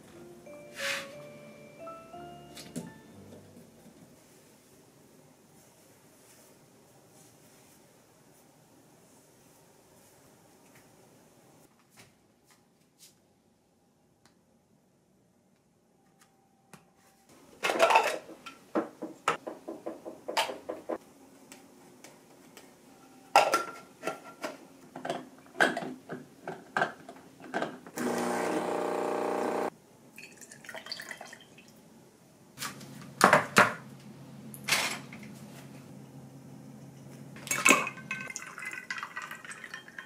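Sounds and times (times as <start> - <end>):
espresso machine hum: 28.0 - 29.7
milk pouring into glass: 30.2 - 31.7, 37.5 - 40.0
metal and glass clinking: 37.4 - 40.0.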